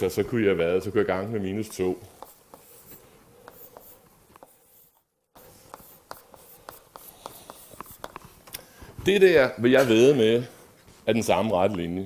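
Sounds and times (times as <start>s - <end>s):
chalk scratching on a blackboard: 1.4s - 8.4s.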